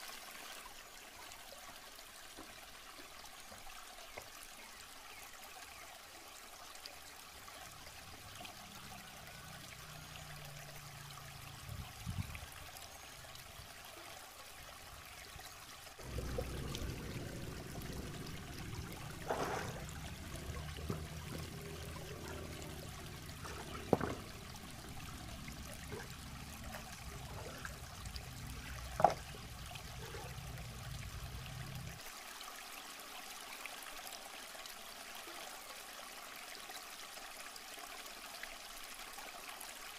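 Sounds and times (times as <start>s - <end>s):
river flowing over rocks: 15.9s - 32.4s
splashes from wading: 16.0s - 30.3s.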